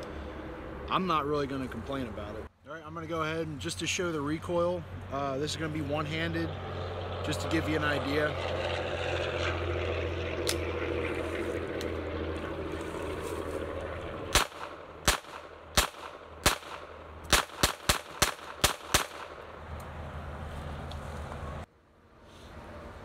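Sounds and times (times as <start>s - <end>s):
steady low rumble: 0.0s - 21.7s
pistol shots: 14.3s - 19.4s.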